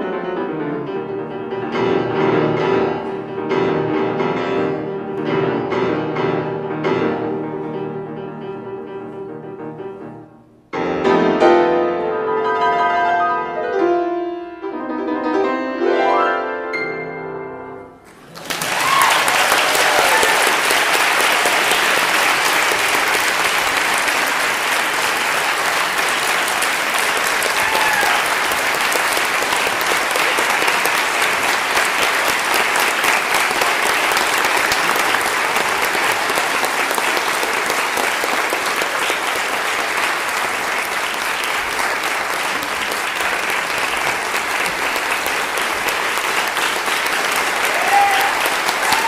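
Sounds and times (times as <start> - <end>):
audience applauding: 18.1 - 49.0.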